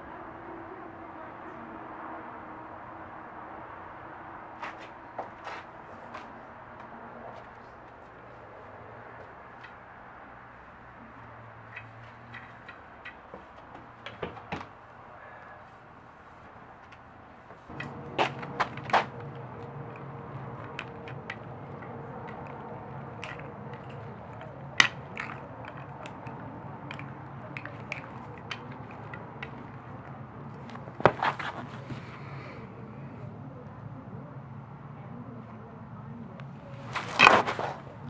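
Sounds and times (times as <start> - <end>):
low steady hum: 14.6 - 38.0.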